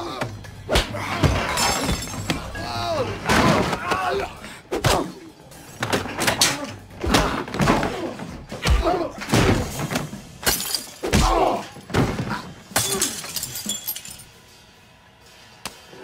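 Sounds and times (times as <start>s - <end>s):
glass shattering: 1.3s - 2.6s, 9.4s - 11.8s, 12.6s - 14.4s.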